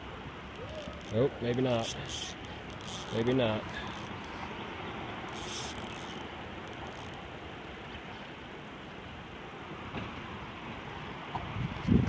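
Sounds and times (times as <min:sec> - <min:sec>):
flowing river water: 0:00.0 - 0:12.0.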